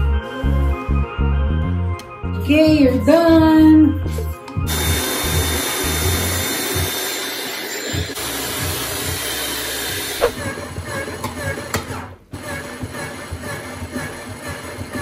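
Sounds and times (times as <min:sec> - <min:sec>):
background music: 0:00.0 - 0:07.1
hair dryer blowing: 0:04.7 - 0:10.4.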